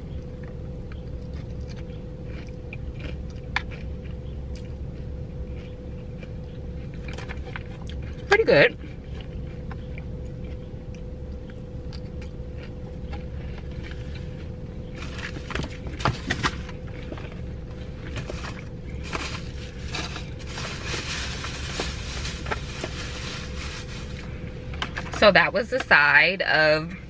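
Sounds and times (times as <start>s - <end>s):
steady low hum: 0.0s - 27.0s
person chewing: 0.4s - 8.2s, 8.8s - 16.1s.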